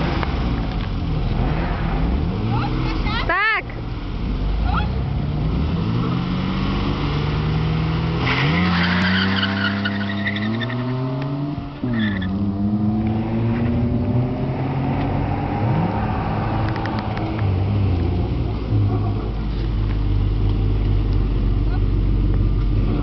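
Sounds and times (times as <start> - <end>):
car engines revving: 0.0 - 23.0
tyre squeal: 8.2 - 11.1, 11.8 - 12.4.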